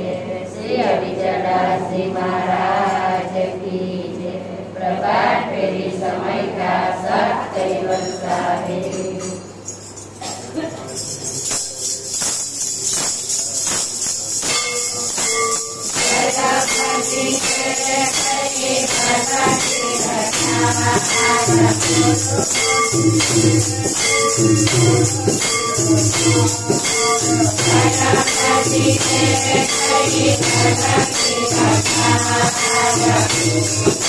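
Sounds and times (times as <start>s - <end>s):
women singing in chorus: 0.0s - 9.5s, 15.9s - 34.0s
hand clappers beating a rhythm: 8.9s - 34.0s.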